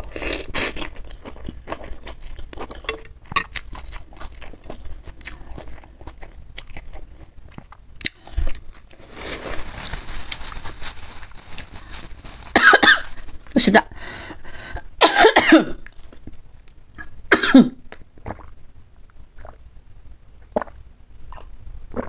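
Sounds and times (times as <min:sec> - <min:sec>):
chewing: 0:00.0 - 0:09.0
tissue rustling: 0:09.0 - 0:13.6.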